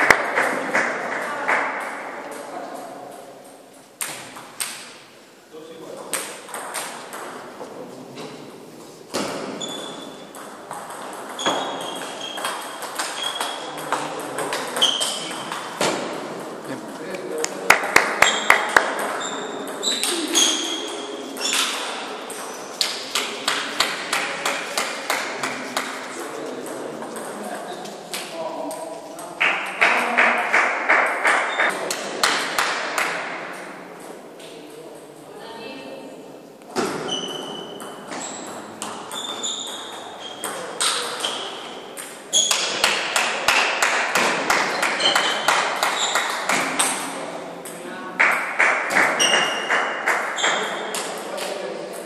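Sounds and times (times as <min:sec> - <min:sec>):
table tennis ball hits: 0:06.1 - 0:07.4, 0:17.7 - 0:26.0, 0:29.3 - 0:33.4, 0:36.8 - 0:51.5.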